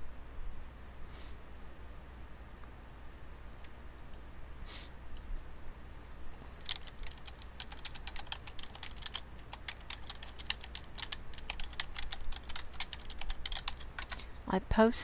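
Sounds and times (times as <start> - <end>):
typing on computer keyboard: 6.6 - 14.3.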